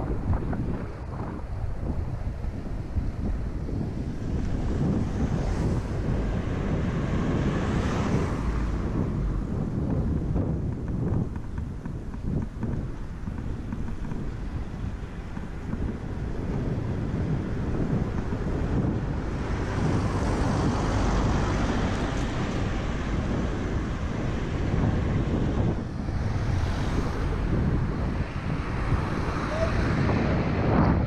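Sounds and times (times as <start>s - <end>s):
vehicle passing alongside: 0.0s - 11.4s, 14.3s - 31.0s
traffic noise: 0.0s - 31.0s
wind rushing on microphone: 0.0s - 31.0s.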